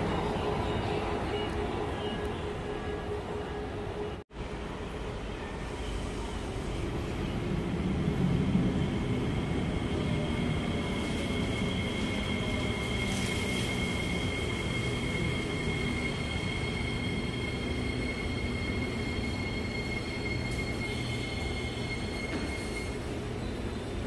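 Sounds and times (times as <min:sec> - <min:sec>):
train rumbling past: 0:00.0 - 0:24.0
steady high-pitched tone: 0:08.7 - 0:23.6.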